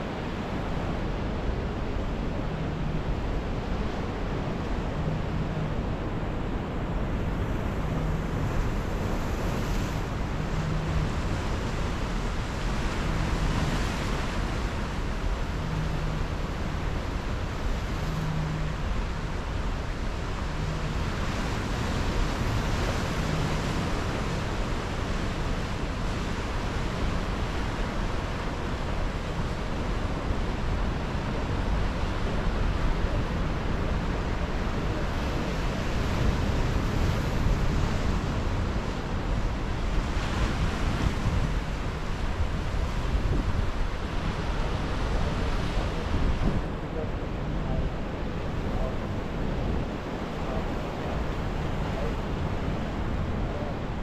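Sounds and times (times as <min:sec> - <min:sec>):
wind buffeting microphone: 0:30.6 - 0:54.0.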